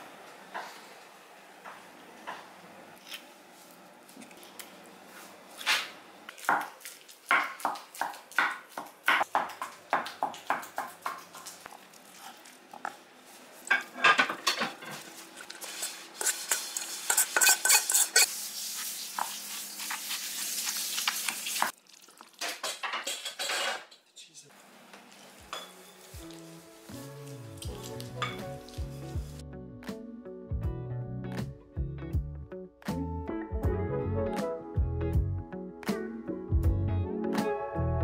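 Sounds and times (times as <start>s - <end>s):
wet stirring and scraping: 14.9s - 23.2s.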